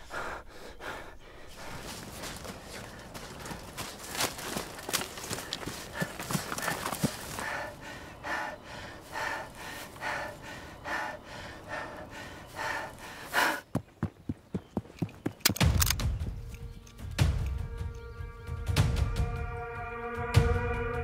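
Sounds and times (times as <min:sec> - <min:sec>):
person breathing hard: 0:00.0 - 0:13.8
sharp clicks and knocks: 0:15.0 - 0:17.6.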